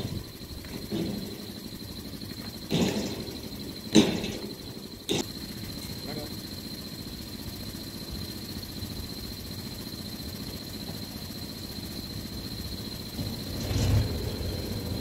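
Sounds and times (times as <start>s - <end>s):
tractor diesel engine running: 0.0s - 15.0s
high-pitched whine: 11.6s - 15.0s.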